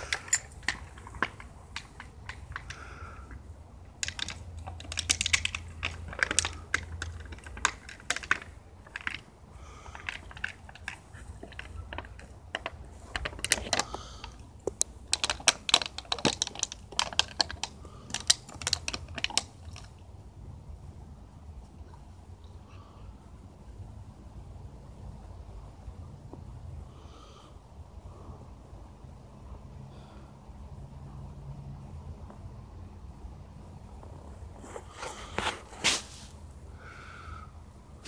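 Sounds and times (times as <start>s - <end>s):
dog chewing plastic bottle: 4.0s - 9.3s, 9.9s - 19.9s.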